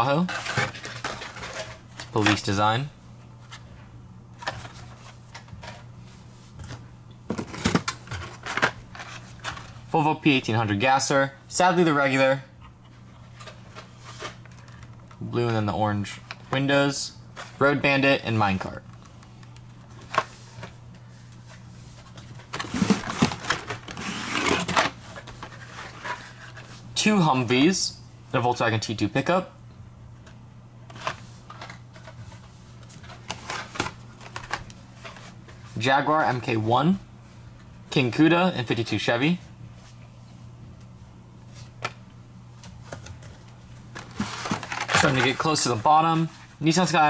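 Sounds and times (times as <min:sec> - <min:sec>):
steady low hum: 0:00.0 - 0:47.0
plastic and card clicks and rustles: 0:00.2 - 0:02.5, 0:06.6 - 0:09.8, 0:13.4 - 0:15.2, 0:22.1 - 0:26.7, 0:30.2 - 0:35.3, 0:42.6 - 0:46.4.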